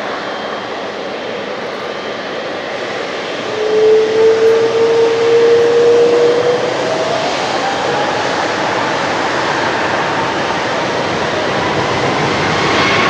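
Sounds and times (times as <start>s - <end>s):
jet engines rushing: 0.0s - 13.0s
rising jet engine whine: 0.0s - 13.0s.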